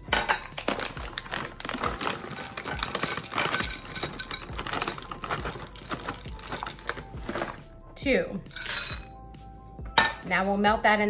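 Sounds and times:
wafers clinking against glass: 1.7s - 7.6s, 8.5s - 9.2s.

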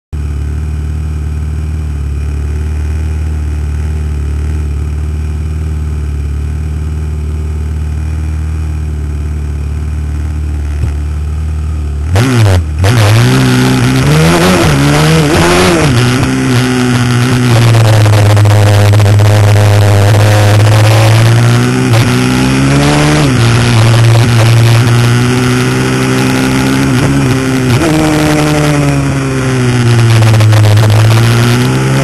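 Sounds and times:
motorcycle engines idling: 0.2s - 12.1s
motorcycle engines revving: 0.2s - 32.0s.

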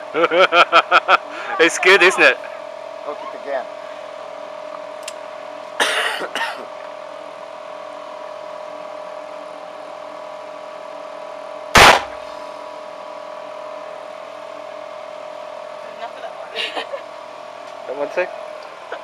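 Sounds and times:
steady hum: 0.0s - 19.0s
revolver gunshot: 11.7s - 12.2s.

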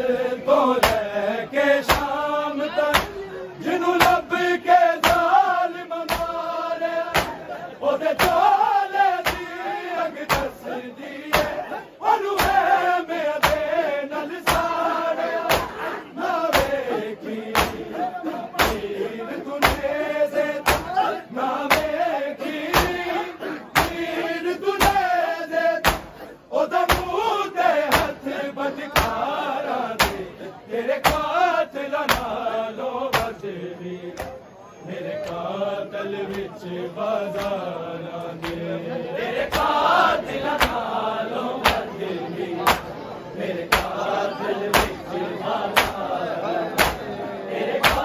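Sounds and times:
men chanting a lament: 0.0s - 48.0s
hand slaps on bare chests: 0.8s - 1.1s, 1.8s - 2.2s, 2.9s - 3.2s, 4.0s - 4.3s, 5.0s - 5.4s, 6.0s - 6.5s, 7.1s - 7.4s, 8.1s - 8.6s, 9.2s - 9.6s, 10.2s - 10.6s, 11.3s - 11.7s, 12.4s - 12.8s, 13.4s - 13.8s, 14.4s - 14.8s, 15.4s - 15.8s, 16.5s - 16.8s, 17.5s - 18.0s, 18.6s - 18.9s, 19.6s - 20.0s, 20.6s - 21.1s, 21.7s - 22.0s, 22.7s - 23.1s, 23.8s - 24.1s, 24.8s - 25.1s, 25.8s - 26.2s, 26.8s - 27.2s, 27.9s - 28.2s, 28.9s - 29.3s, 29.9s - 30.3s, 31.0s - 31.4s, 32.0s - 32.4s, 33.1s - 33.4s, 34.2s - 34.4s, 37.3s - 37.6s, 38.4s - 38.7s, 39.4s - 39.8s, 40.6s - 40.9s, 41.6s - 41.9s, 42.6s - 42.9s, 43.7s - 44.0s, 44.7s - 45.1s, 45.7s - 46.1s, 46.8s - 47.1s, 47.8s - 48.0s.

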